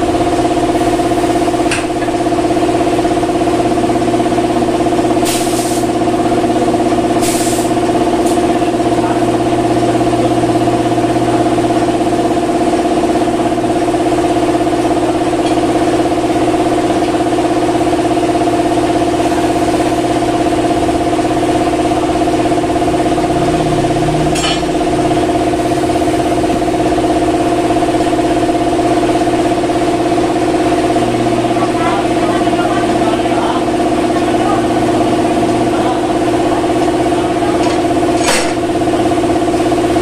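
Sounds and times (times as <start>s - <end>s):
motor drone: 0.0s - 4.8s, 17.3s - 40.0s.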